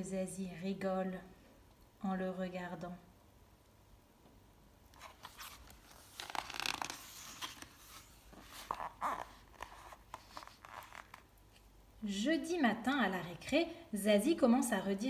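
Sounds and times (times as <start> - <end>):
book pages turning: 4.9 - 11.7.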